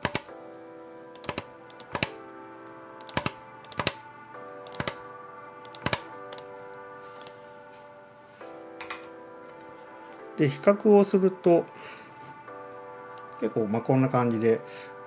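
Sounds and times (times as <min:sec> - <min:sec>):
computer keys clicking: 0:00.0 - 0:00.3, 0:01.1 - 0:02.2, 0:03.0 - 0:04.0, 0:04.6 - 0:05.0, 0:05.6 - 0:06.5, 0:07.2 - 0:07.4
background music with sustained chords: 0:00.0 - 0:15.0.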